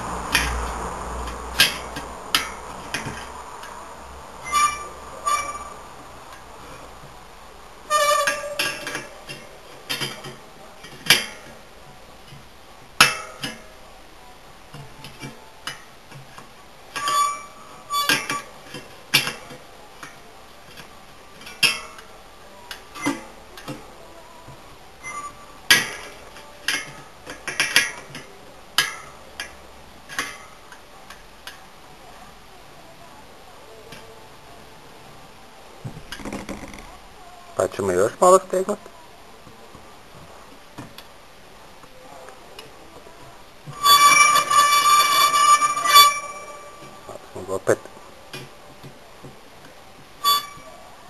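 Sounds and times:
bicycle spokes pinging: 0:00.0 - 0:07.2, 0:07.8 - 0:14.0, 0:14.7 - 0:31.7, 0:42.6 - 0:47.2, 0:50.0 - 0:50.8.

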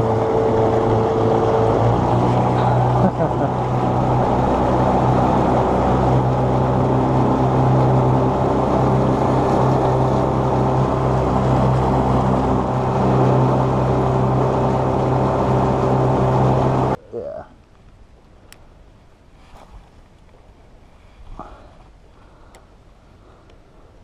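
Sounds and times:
outboard motor running: 0:00.0 - 0:17.0
water rushing along hull: 0:00.0 - 0:17.0.

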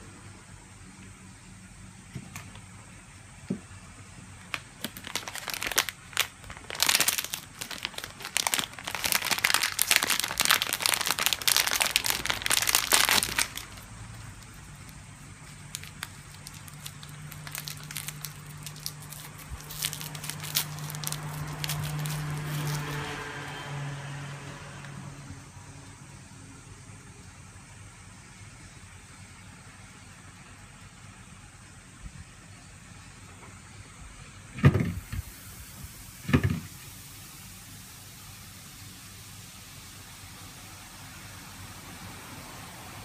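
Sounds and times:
plastic film crinkling and tearing: 0:04.4 - 0:23.2.

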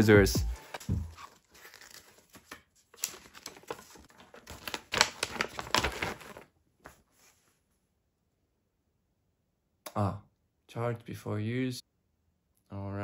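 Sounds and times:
cardboard and paper rustling: 0:00.6 - 0:07.6.

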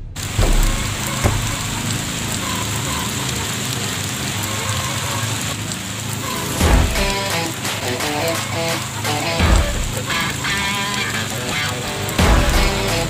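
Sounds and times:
low thumps: 0:00.0 - 0:02.3, 0:06.6 - 0:07.2, 0:09.4 - 0:10.0
rain falling on wet ground: 0:00.1 - 0:13.0.

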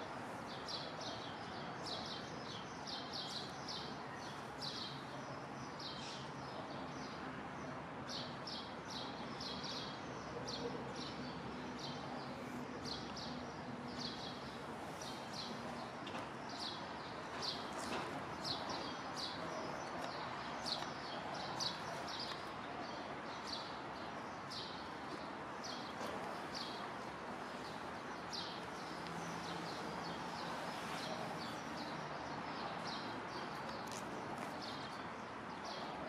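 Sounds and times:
outdoor background noise: 0:00.0 - 0:36.0.

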